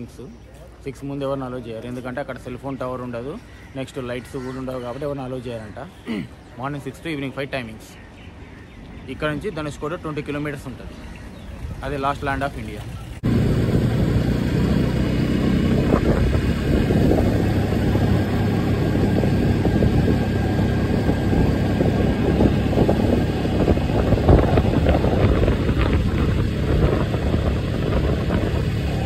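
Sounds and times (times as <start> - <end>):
motorcycle engine running: 12.9 - 29.0
wind rushing over microphone: 13.2 - 29.0.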